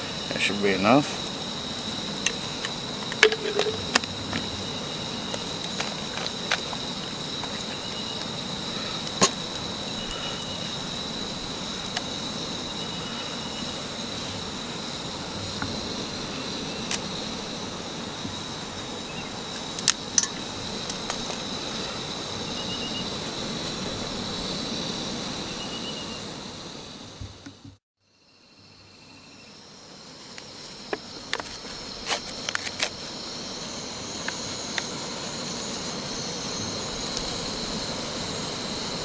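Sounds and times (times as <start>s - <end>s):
insects trilling: 0.0s - 39.0s
steady low hiss: 0.0s - 39.0s.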